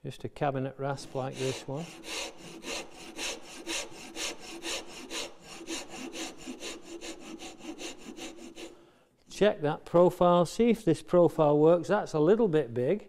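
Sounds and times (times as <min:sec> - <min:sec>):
rasp filing wood: 0:00.9 - 0:08.8.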